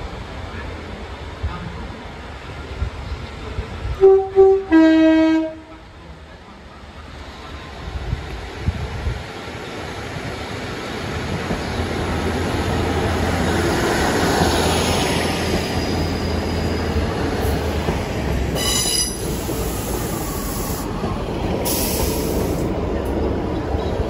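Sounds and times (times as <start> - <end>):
diesel train rumbling past: 0.0 - 24.0
high-pitched train squeal: 14.6 - 17.7, 18.5 - 20.9.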